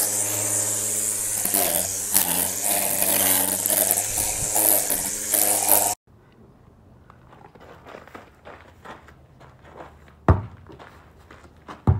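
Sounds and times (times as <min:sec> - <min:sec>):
electric string trimmer cutting grass: 0:00.0 - 0:06.0.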